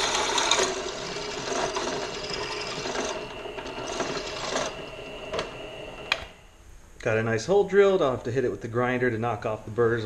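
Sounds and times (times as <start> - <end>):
drill bit cutting steel: 0.0 - 5.3
drill press motor whining: 0.0 - 6.4.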